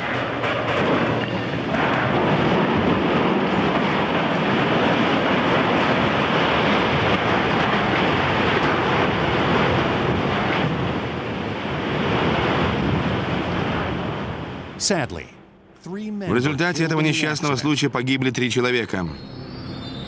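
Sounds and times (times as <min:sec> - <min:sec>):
wind buffeting microphone: 0:00.0 - 0:14.8.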